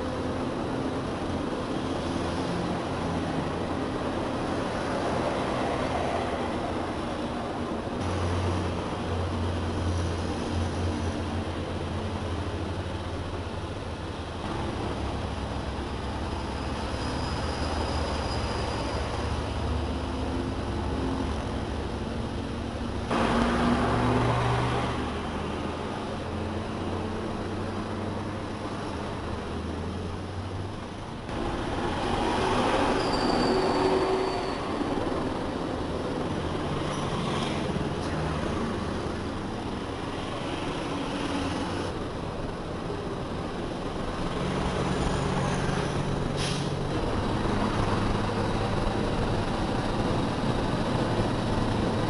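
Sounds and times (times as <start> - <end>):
road and wind noise: 0.0 - 52.0
truck engine running: 41.9 - 52.0.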